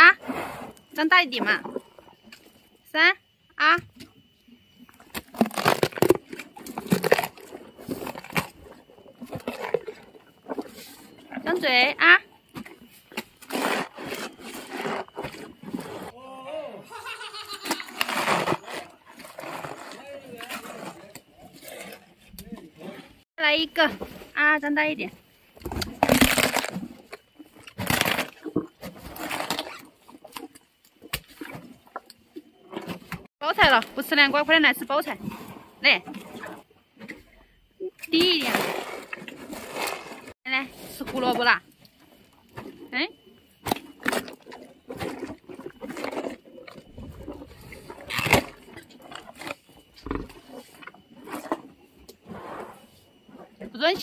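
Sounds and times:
hippo crunching food: 4.8 - 11.5, 17.2 - 23.0, 25.6 - 33.3, 43.5 - 52.6.

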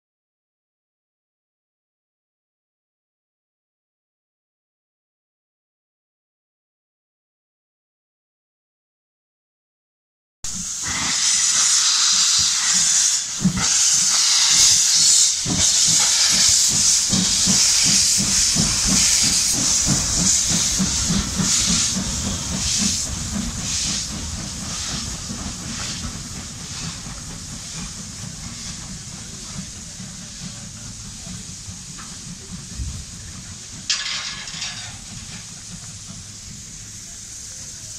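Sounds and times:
steam locomotive hissing and chuffing: 10.5 - 37.9.

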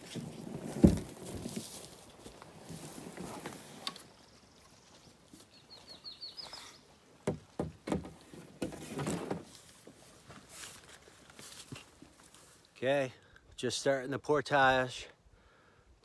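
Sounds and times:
rustling: 0.0 - 4.2, 7.9 - 12.8
small bird chirping: 4.9 - 6.9
paddles knocking against canoe hull: 7.2 - 9.4.

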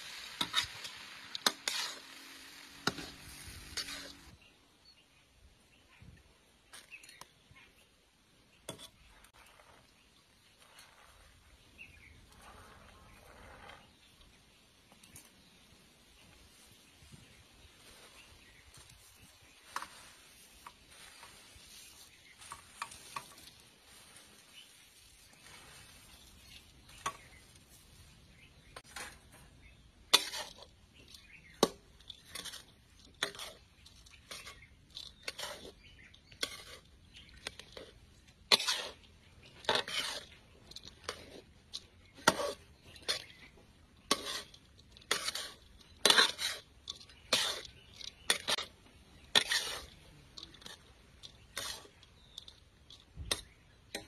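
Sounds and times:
metal spatula scraping a metal pan: 0.3 - 4.4, 30.1 - 54.0.

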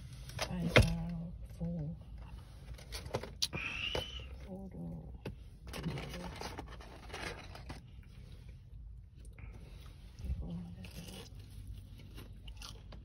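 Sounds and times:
styrofoam box scraping and creaking: 5.7 - 7.9.

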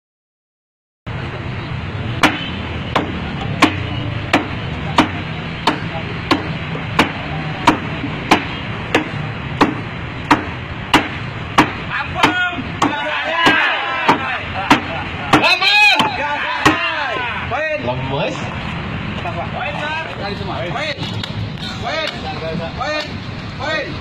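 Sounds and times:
knife chopping wood: 3.0 - 16.8.

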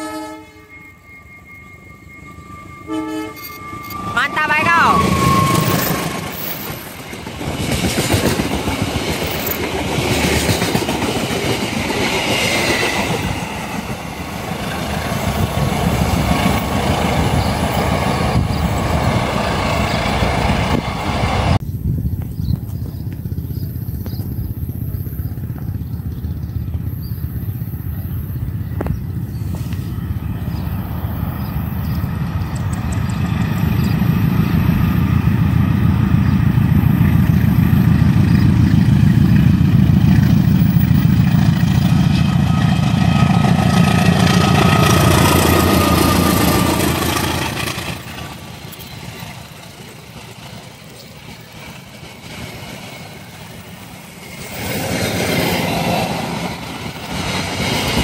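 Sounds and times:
high steady tones: 0.0 - 7.4
train coaches rolling on rails: 0.0 - 58.0.

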